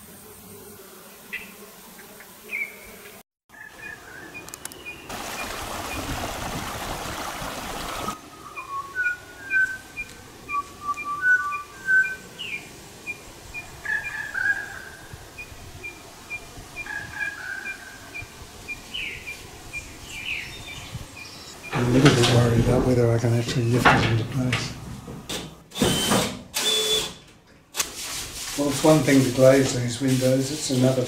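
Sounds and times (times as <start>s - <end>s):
birds whistling: 7.9s - 21.8s.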